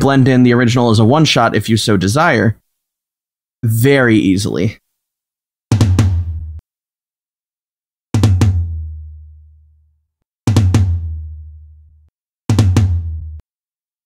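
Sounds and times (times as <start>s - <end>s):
kick and snare drum hits: 5.7s - 6.6s, 8.2s - 9.1s, 10.5s - 11.5s, 12.5s - 13.4s.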